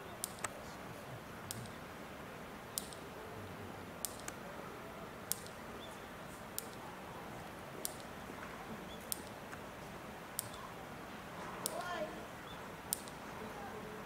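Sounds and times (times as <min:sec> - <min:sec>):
background hiss: 0:00.0 - 0:14.0
electric fence ticks: 0:00.2 - 0:00.6, 0:01.4 - 0:01.8, 0:02.7 - 0:03.1, 0:04.0 - 0:04.4, 0:05.2 - 0:10.7, 0:11.4 - 0:13.3.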